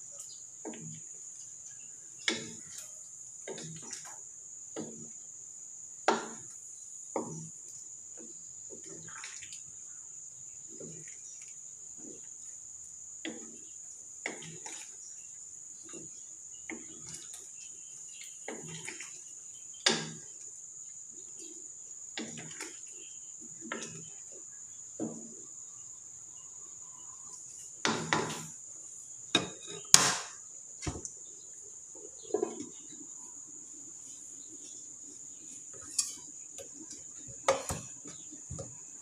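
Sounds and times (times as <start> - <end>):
wooden spatula scraping a wok: 27.6 - 28.6, 29.3 - 30.0, 34.1 - 38.7.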